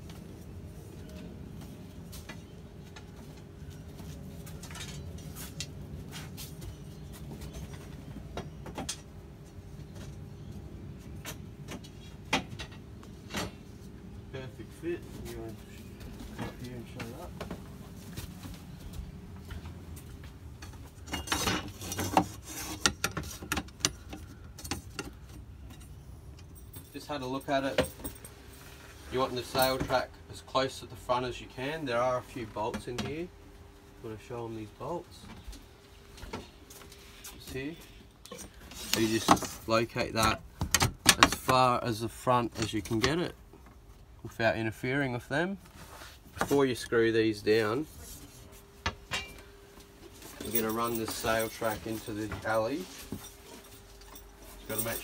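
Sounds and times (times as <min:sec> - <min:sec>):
steady low hum: 0:00.0 - 0:55.0
bedding rustling: 0:49.6 - 0:55.0.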